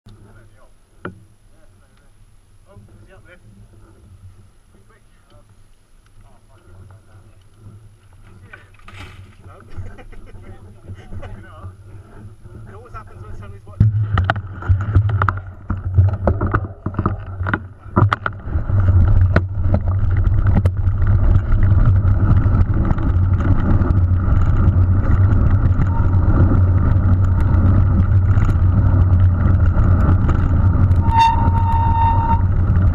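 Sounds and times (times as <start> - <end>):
tyres rumbling on gravel: 6.6 - 32.9
wind buffeting microphone: 9.2 - 32.9
high squeal: 30.9 - 32.7.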